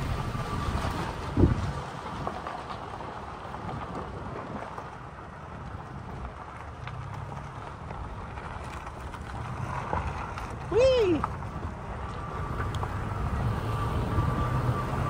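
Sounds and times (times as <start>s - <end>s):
wind on microphone: 0.0s - 2.5s
gravel ticks: 0.0s - 15.0s
pickup truck engine rumble: 0.0s - 15.0s
tyres on dirt and stones: 0.0s - 15.0s.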